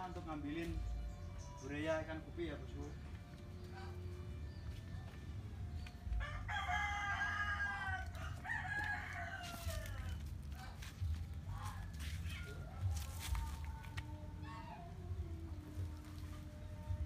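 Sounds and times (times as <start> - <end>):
rooster crowing: 6.2 - 10.3.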